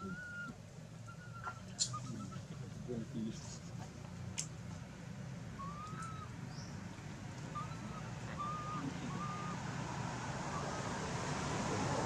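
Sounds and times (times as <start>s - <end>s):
whistle-like animal calls: 0.0s - 2.5s, 5.6s - 6.3s, 7.5s - 9.6s.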